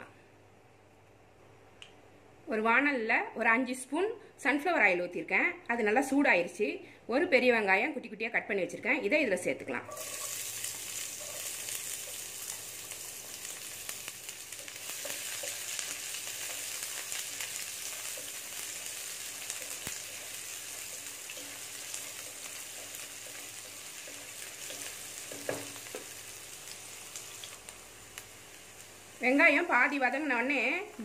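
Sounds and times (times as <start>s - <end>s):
onion sizzling in oil: 9.9s - 31.0s
knock against pan: 25.3s - 25.8s.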